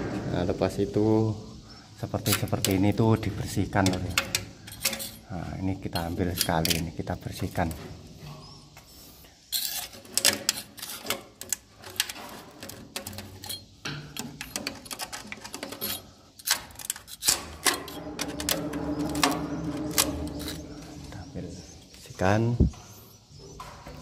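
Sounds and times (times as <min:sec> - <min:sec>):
hand scraper scraping wood: 0:09.5 - 0:13.6
steady low hum: 0:17.6 - 0:24.0.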